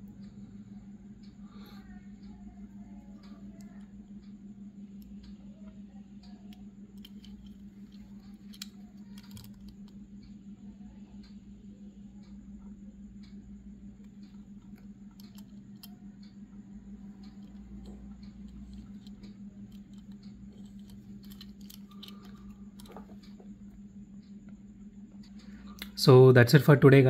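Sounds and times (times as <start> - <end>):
steady low hum: 0.0 - 27.0
fingers clicking on toy car: 6.2 - 9.9, 17.2 - 23.4.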